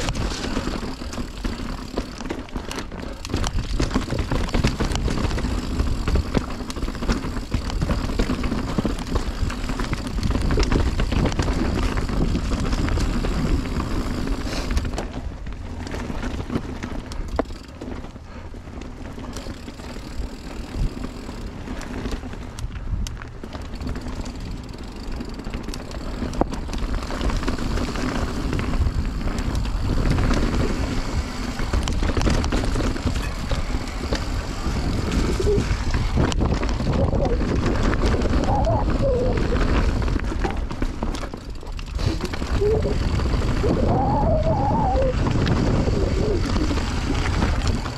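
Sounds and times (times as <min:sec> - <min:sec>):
bike tyre rumble and rattle: 0:00.0 - 0:47.9
wind on microphone: 0:27.4 - 0:47.9.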